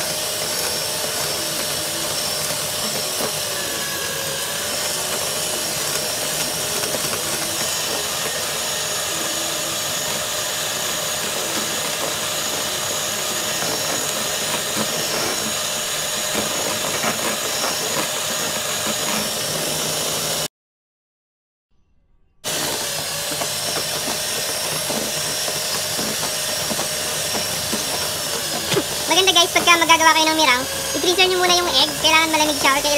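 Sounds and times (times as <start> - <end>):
electric hand mixer running: 0.0 - 20.5, 22.4 - 32.9.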